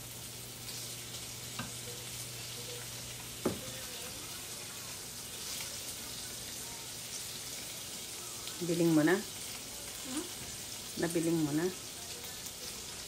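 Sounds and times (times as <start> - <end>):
bacon sizzling in a pan: 0.0 - 13.0.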